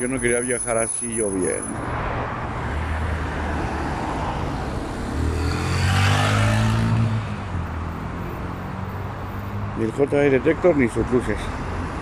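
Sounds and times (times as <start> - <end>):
low traffic drone: 0.0 - 12.0
vehicle driving past: 2.2 - 8.9.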